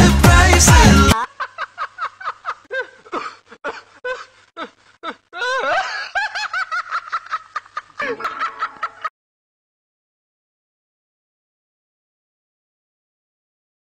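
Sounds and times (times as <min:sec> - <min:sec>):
pop song with singing: 0:00.0 - 0:01.4
man laughing: 0:00.8 - 0:09.1.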